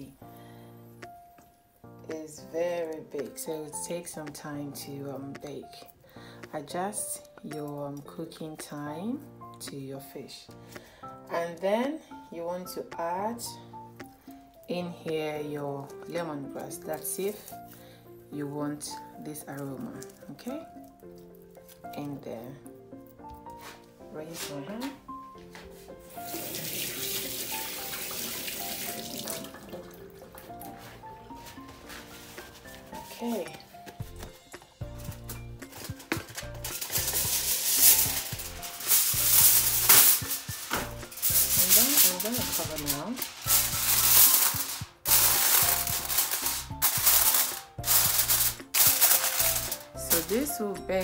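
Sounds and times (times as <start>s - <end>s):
background music: 0.0s - 51.0s
aluminium foil crinkling: 18.9s - 22.2s, 30.6s - 50.6s
tap running into a sink: 26.3s - 30.0s.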